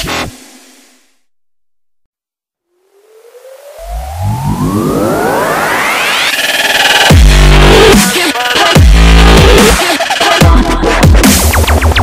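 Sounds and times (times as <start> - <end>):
rising whoosh with climbing tone: 2.7 - 7.1
electronic background music: 2.7 - 12.0.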